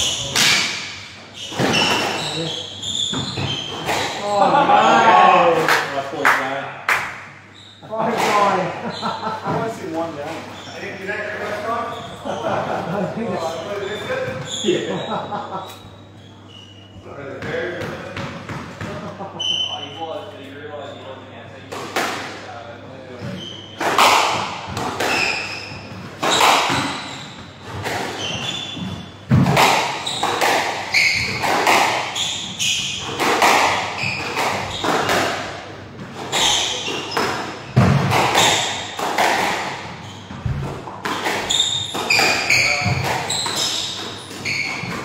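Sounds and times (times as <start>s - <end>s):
shoes squeaking on wooden floor: 1.3s - 4.2s, 7.5s - 12.4s, 13.4s - 17.6s, 23.2s - 24.1s, 24.7s - 45.0s
squash ball hits echoing: 23.8s - 25.5s, 26.2s - 27.1s, 28.8s - 35.6s, 36.2s - 43.3s.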